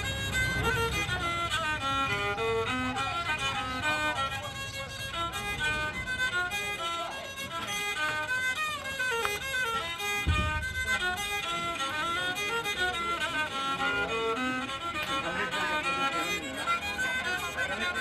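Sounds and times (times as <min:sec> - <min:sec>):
fiddle melody: 0:00.0 - 0:18.0
low thump: 0:10.2 - 0:11.1.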